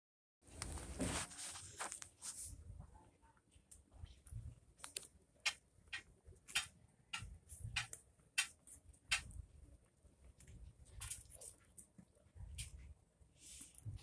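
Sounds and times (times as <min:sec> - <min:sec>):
kittens suckling clicks and smacks: 0:03.8 - 0:13.0.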